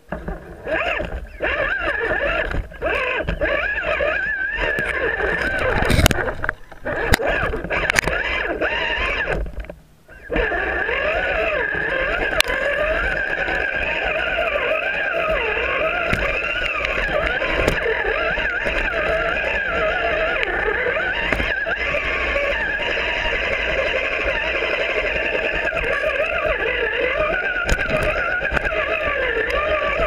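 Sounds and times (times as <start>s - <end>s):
electric motor and gearbox whining: 0.0s - 30.0s
toy crawler knocking on rocks: 12.0s - 30.0s.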